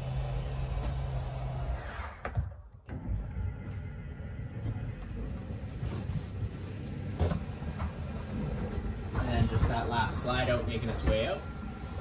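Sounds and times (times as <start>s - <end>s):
electric motor hum: 0.0s - 2.0s.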